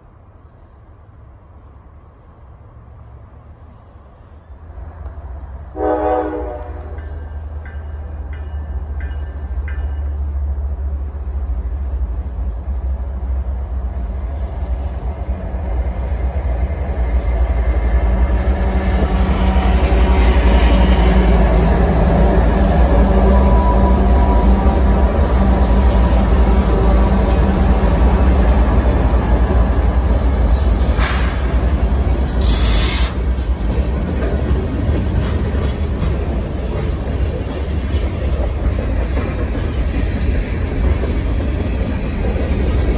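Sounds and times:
locomotive engine rumble: 0:00.0 - 0:42.9
train horn: 0:05.7 - 0:07.2
freight cars rumbling and clattering: 0:06.9 - 0:42.9.

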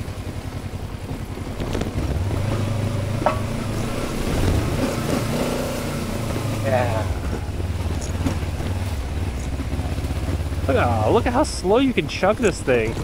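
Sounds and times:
motorcycle engine chugging: 0:00.0 - 0:13.0.

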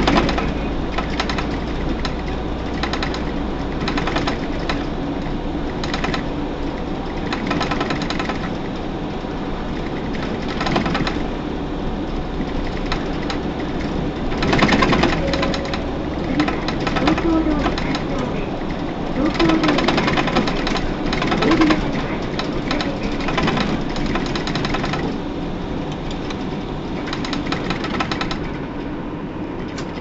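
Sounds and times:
clattering rattles: 0:00.0 - 0:05.0, 0:12.1 - 0:25.2
bus diesel engine drone: 0:00.0 - 0:30.0
road noise: 0:00.0 - 0:30.0.

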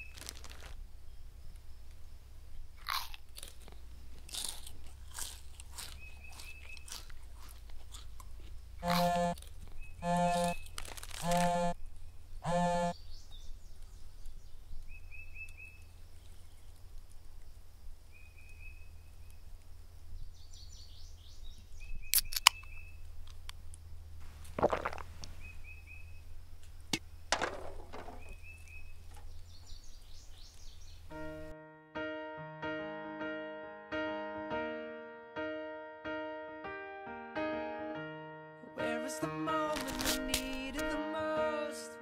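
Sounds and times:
bird chirps: 0:05.8 - 0:07.1, 0:08.8 - 0:16.7, 0:18.1 - 0:19.5, 0:20.2 - 0:23.0, 0:25.3 - 0:26.4, 0:28.2 - 0:31.5
steady low hum: 0:07.2 - 0:14.2.

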